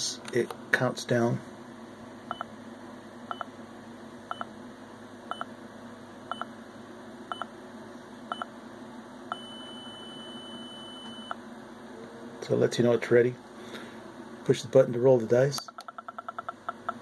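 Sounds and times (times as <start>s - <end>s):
long steady higher beep: 9.3s - 11.4s
short electronic beeps: 9.3s - 11.4s.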